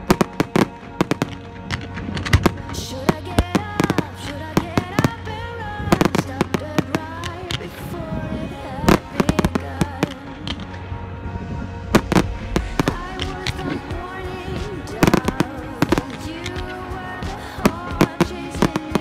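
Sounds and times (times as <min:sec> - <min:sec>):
fireworks bangs and crackles: 0:00.0 - 0:05.3, 0:08.8 - 0:19.0
melodic music: 0:00.0 - 0:19.0.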